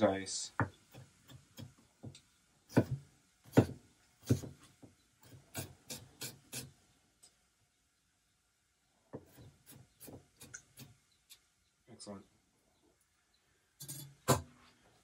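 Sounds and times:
knife chopping on wooden board: 0.6 - 6.7, 14.2 - 14.5.

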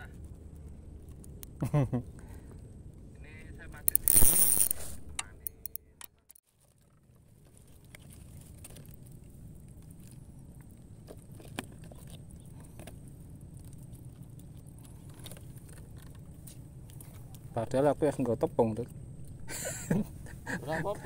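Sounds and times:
hands handling gear clicking: 3.8 - 6.4.

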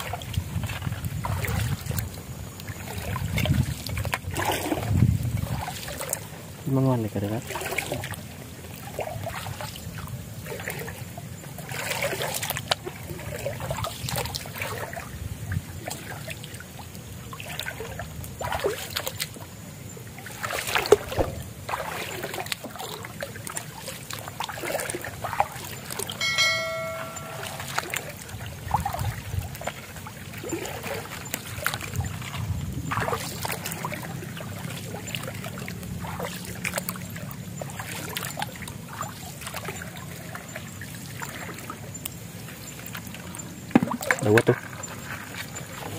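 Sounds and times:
wading through shallow water: 0.0 - 45.9
short pitched tone: 26.2 - 28.0.

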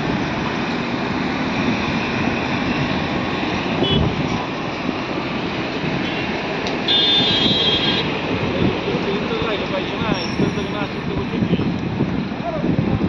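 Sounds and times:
highway traffic noise: 0.0 - 13.0.

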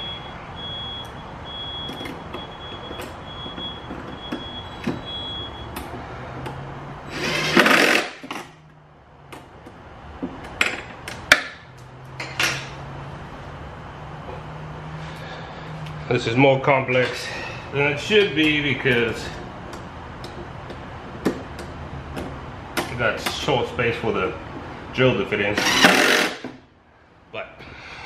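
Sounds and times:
impact driver hammering: 25.6 - 26.6.

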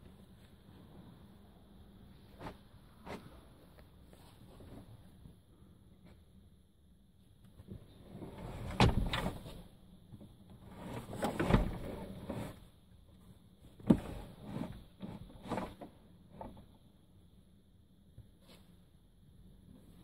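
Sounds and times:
metal seat base clunking and scraping: 8.3 - 9.6, 10.9 - 12.6.

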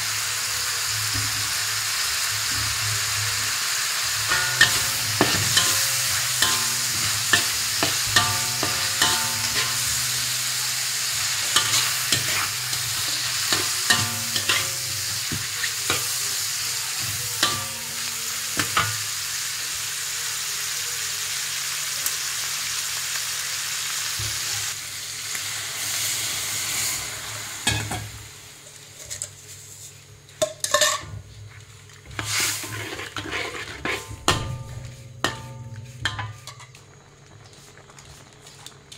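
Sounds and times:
meat sizzling in a wok: 0.0 - 38.9
metal spatula scraping a wok: 4.0 - 19.1, 28.9 - 36.9.

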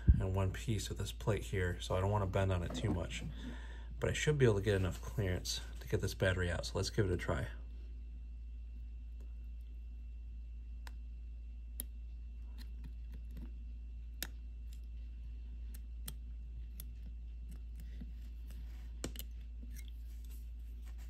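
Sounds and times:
steady low hum: 0.0 - 21.0
metal tweezer clicks and scrapes: 19.1 - 20.3.

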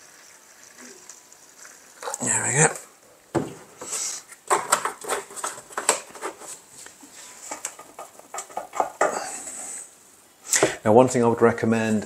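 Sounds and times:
plastic containers knocking on worktop: 3.3 - 3.7, 4.5 - 6.2.

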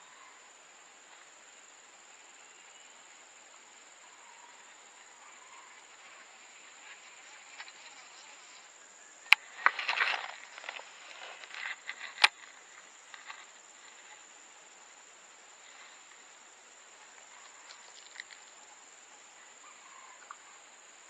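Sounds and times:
high-pitched insect drone: 1.7 - 21.0
rod swinging and line running: 9.6 - 13.5.

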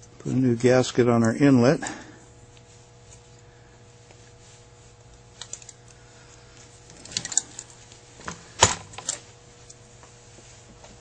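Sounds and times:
small metal parts clicking: 6.9 - 7.7.

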